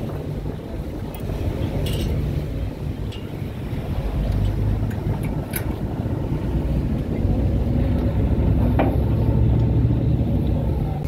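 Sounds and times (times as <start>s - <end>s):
boat engine humming: 0.0s - 11.0s.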